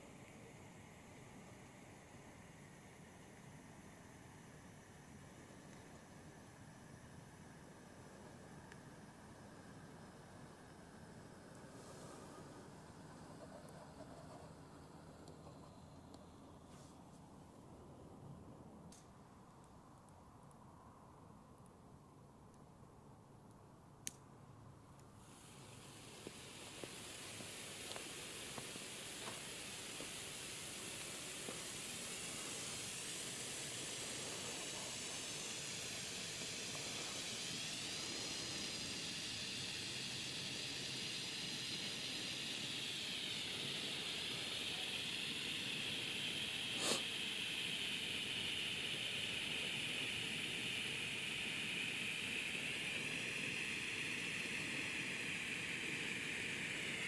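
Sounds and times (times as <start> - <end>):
flare burning with hiss: 0.0 - 17.4, 25.0 - 57.0
faint crackles: 24.9 - 47.2.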